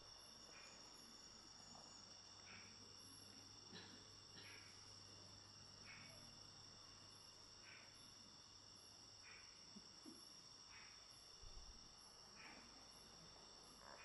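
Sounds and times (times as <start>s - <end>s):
insect chirps: 0.0s - 14.0s
insect trilling: 12.3s - 14.0s.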